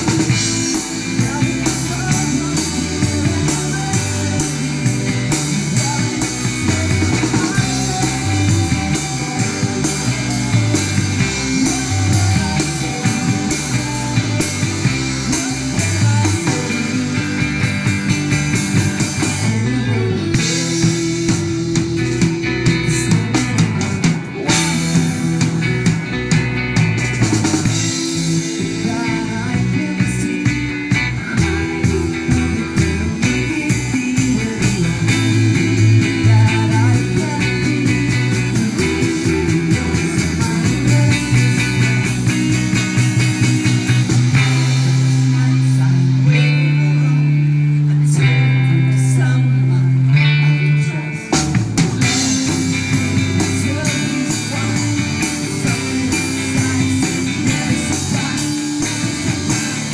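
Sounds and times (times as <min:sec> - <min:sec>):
rock band playing live: 0:00.0 - 0:59.9.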